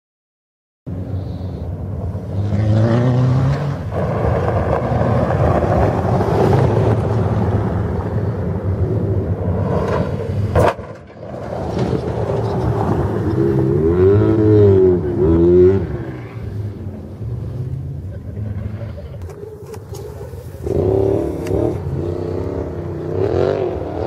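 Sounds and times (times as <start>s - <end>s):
noisy rush: 0.9s - 24.0s
off-road vehicle engine revving: 2.2s - 8.2s, 11.4s - 24.0s.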